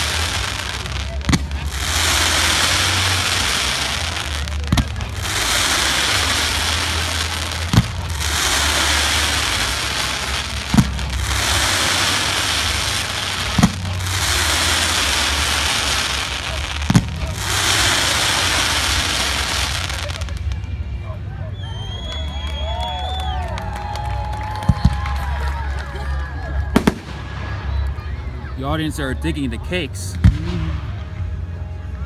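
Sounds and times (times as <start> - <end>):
fireworks bangs: 0.0 - 20.6, 26.7 - 28.0
fireworks crackling: 0.0 - 21.0, 22.0 - 31.2.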